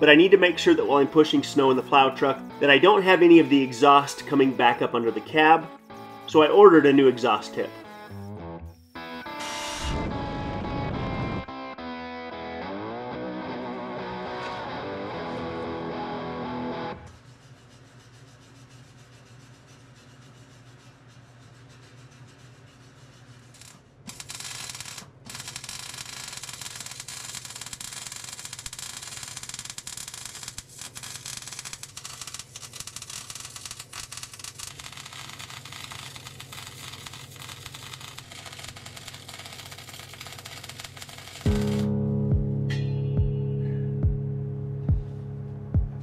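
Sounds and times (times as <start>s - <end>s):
welding arc crackling: 0.0s - 10.7s, 23.2s - 41.9s.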